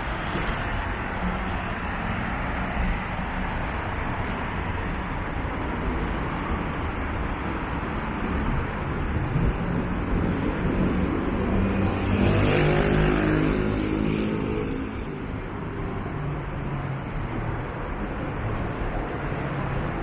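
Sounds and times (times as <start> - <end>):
steady traffic noise: 0.0 - 20.0
motor vehicle passing: 9.2 - 15.2.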